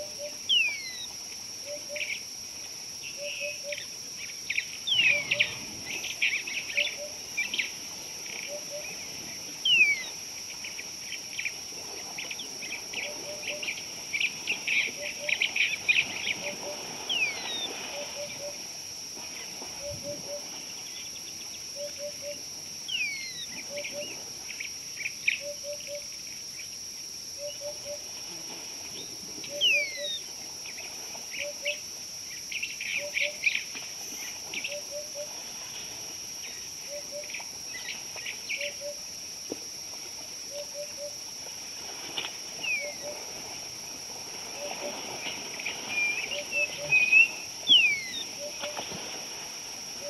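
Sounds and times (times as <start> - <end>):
high drone of insects: 0.0 - 50.0.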